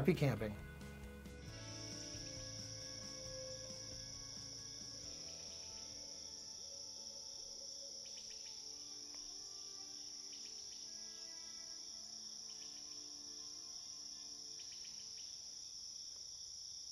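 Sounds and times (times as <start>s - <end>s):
faint soft music: 0.0s - 15.7s
crickets chirring: 1.5s - 16.9s.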